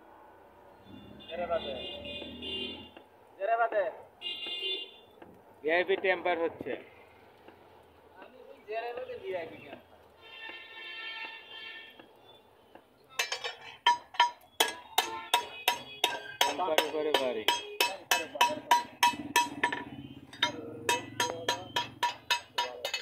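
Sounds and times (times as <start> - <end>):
hammer striking steel on anvil: 13.2 - 23.0.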